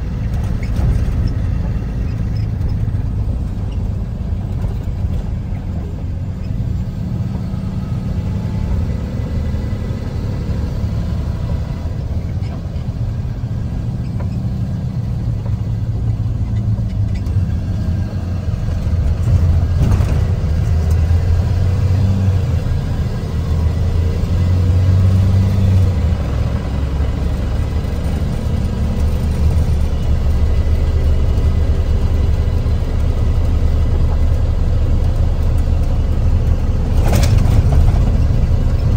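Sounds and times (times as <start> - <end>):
car cabin road rumble: 0.0 - 38.9.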